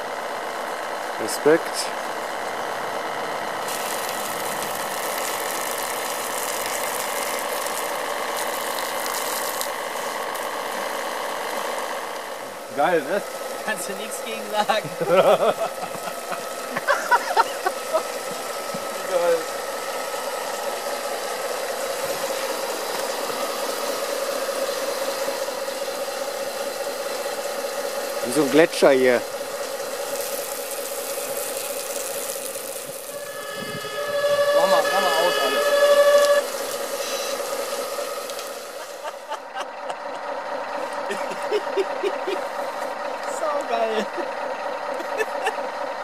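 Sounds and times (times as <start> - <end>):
small pump motor whirring: 2.4 - 45.8.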